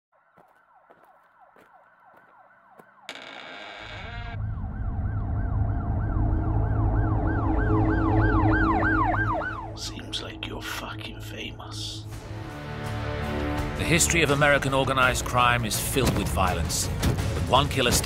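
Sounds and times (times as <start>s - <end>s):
deep low rumble: 3.9s - 12.2s
siren in fast yelp mode: 4.0s - 9.8s.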